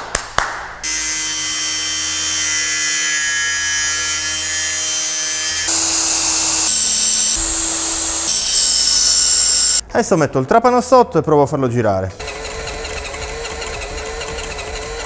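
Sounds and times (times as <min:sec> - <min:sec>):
angle grinder cutting metal: 0:00.8 - 0:09.8, 0:12.2 - 0:15.0
cordless drill running: 0:05.6 - 0:09.8, 0:12.2 - 0:15.0.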